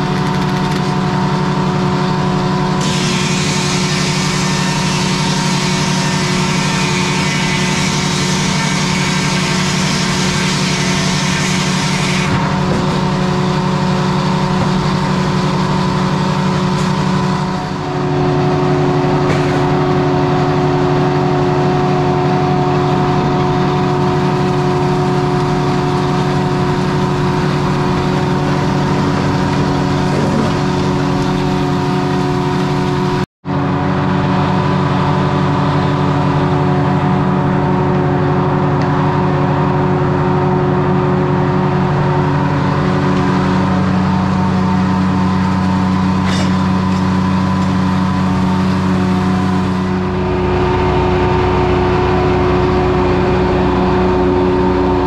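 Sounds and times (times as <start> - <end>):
diesel engine running: 0.0 - 55.0
saw cutting with high hiss: 2.8 - 12.4.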